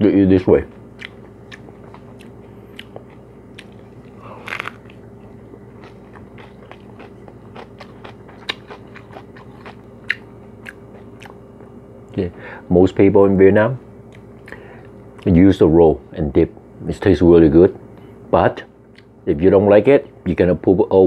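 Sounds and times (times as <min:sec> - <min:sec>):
lettuce crunching: 0:01.0 - 0:11.4
wet mouth clicks: 0:04.4 - 0:05.0.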